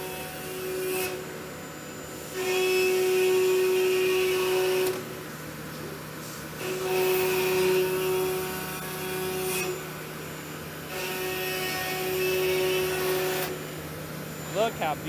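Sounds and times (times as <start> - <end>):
router spindle cutting wood: 6.6 - 15.0.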